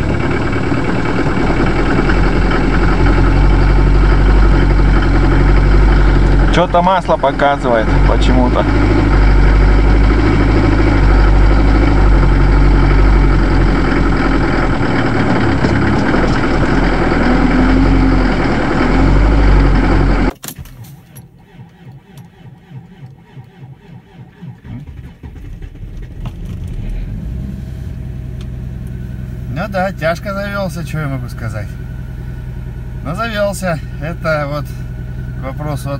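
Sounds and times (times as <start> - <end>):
another engine: 0.0 - 35.9
diesel engine running roughly: 0.0 - 35.9.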